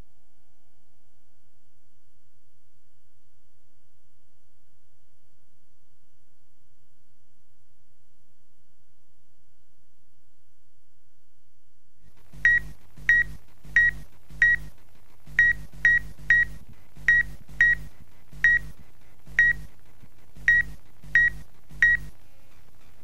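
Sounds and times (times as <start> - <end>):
low buzz: 12.1 - 22.3
short high electronic beeps: 12.4 - 14.7, 15.4 - 18.7, 19.4 - 19.7, 20.4 - 22.1.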